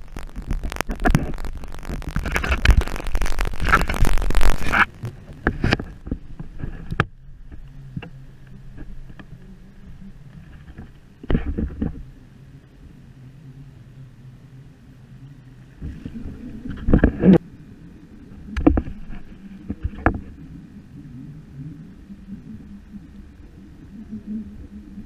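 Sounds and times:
water splashing against kayak: 0.0 - 12.2, 15.6 - 17.4, 18.4 - 20.6
low steady hum: 0.0 - 25.0.

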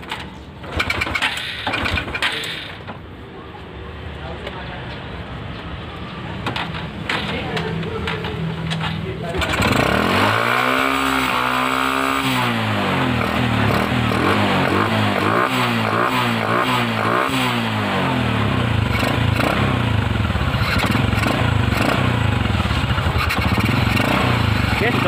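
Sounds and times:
motorcycle engine revving and idling: 0.0 - 3.0, 6.5 - 25.0.

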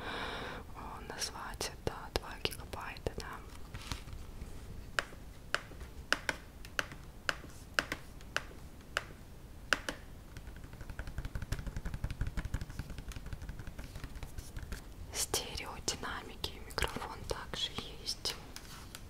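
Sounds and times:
fingernails tapping on plastic: 5.0 - 9.1
scratching and rubbing on plastic: 10.3 - 19.0.

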